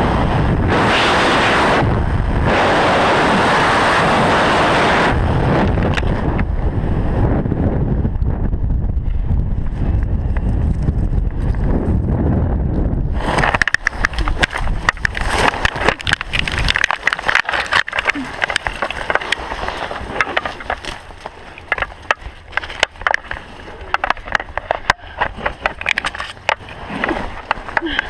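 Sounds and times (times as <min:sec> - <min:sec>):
branches snapping and cracking: 0:13.2 - 0:28.0
canopy fabric and twigs rustling: 0:13.2 - 0:28.0.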